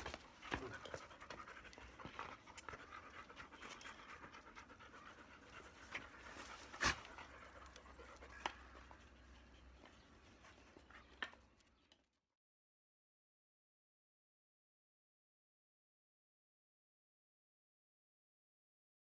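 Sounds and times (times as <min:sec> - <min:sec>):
dog panting: 0:00.0 - 0:12.1.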